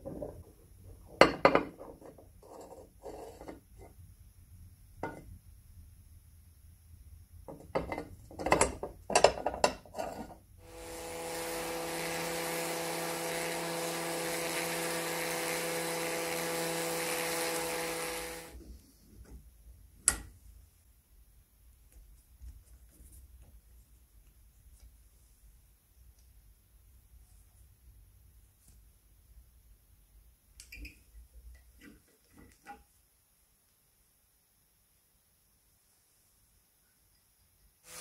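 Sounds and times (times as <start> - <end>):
rotary tool motor whine: 10.6 - 18.6.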